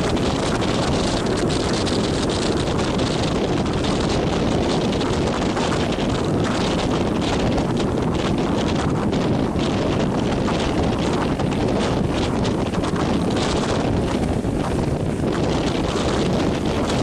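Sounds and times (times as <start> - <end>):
surf breaking on rocks: 0.0 - 17.0
wind blowing across microphone: 0.0 - 17.0.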